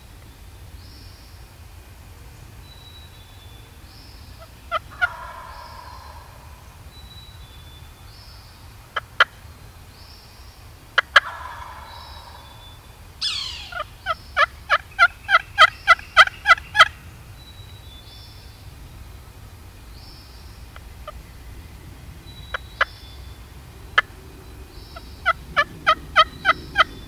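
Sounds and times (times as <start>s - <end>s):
turkey clucks: 4.4s - 6.8s, 11.0s - 17.0s, 20.6s - 21.3s, 23.9s - 24.2s, 24.9s - 27.0s
turkey yelps: 4.7s - 6.6s, 11.0s - 17.0s, 25.2s - 27.0s
turkey gobble: 4.7s - 6.7s, 11.0s - 17.0s, 24.9s - 27.0s.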